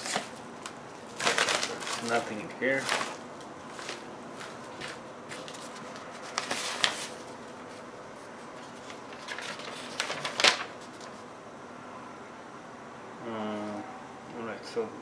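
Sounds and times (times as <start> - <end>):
paper rustling: 0.0 - 11.3.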